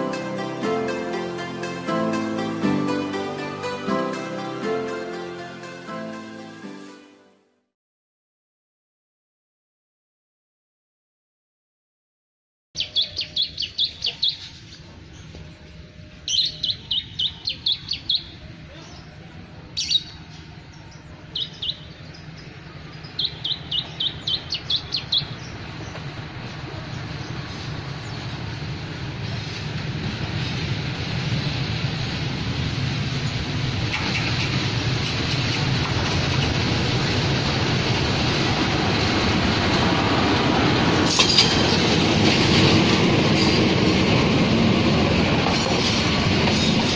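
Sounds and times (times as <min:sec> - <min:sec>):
diesel train rumble: 0:00.0 - 0:06.7, 0:12.8 - 0:46.9
songbird chirping: 0:12.8 - 0:19.2, 0:19.8 - 0:26.2.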